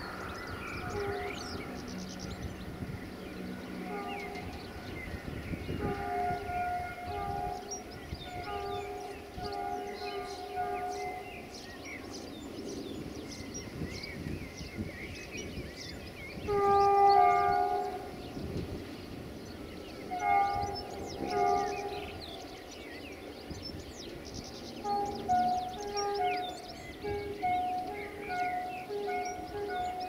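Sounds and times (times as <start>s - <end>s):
locomotive air horn blasts: 0.0s - 11.7s, 16.4s - 19.2s, 20.0s - 22.6s, 24.8s - 30.0s
birds chirping: 0.0s - 30.0s.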